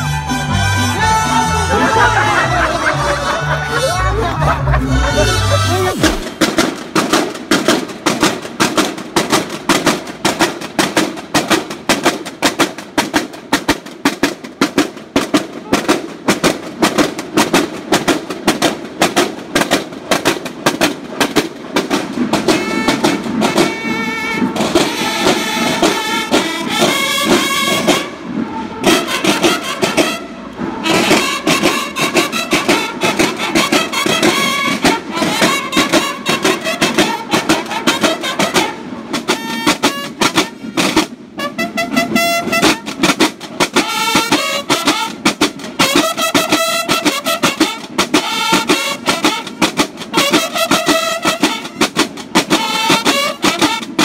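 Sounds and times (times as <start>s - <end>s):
bugles playing held calls: 0.0s - 6.4s, 22.2s - 54.0s
snare drums marching cadence: 5.3s - 54.0s.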